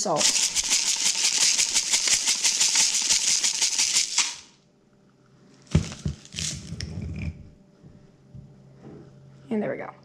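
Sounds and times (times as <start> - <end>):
salt grinder crunching: 0.1 - 4.5, 5.8 - 6.7
rustling and handling noises: 5.4 - 7.3.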